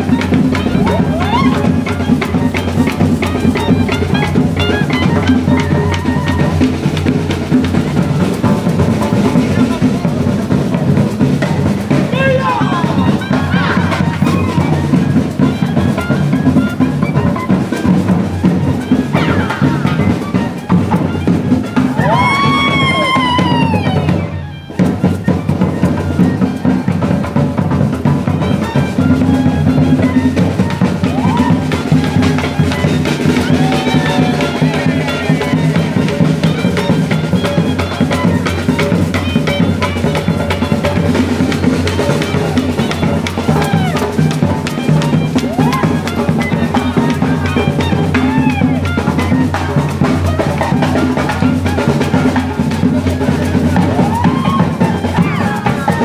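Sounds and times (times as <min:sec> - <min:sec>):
hand drums fast rhythm: 0:00.0 - 0:56.0
sliding melodic phrases: 0:00.0 - 0:56.0.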